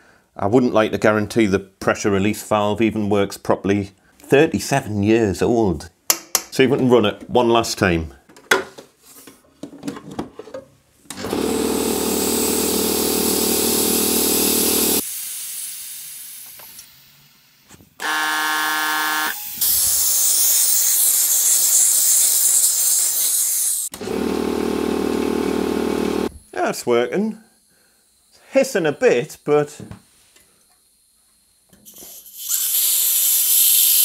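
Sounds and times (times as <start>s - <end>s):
air compressor running: 11.1s - 16.8s, 18.0s - 26.5s, 31.8s - 34.0s
hiss of escaping air: 14.9s - 17.8s, 19.4s - 23.9s, 31.8s - 34.0s.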